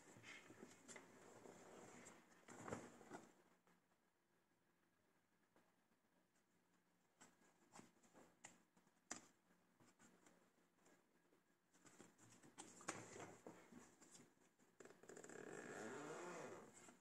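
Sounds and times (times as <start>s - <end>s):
zipper pocket rustle: 15.6s - 16.7s.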